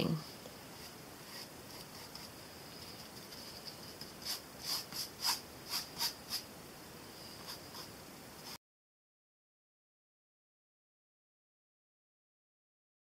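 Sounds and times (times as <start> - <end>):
faint room hiss: 0.0 - 8.6
paintbrush scratching on panel: 0.7 - 6.5, 7.3 - 8.6.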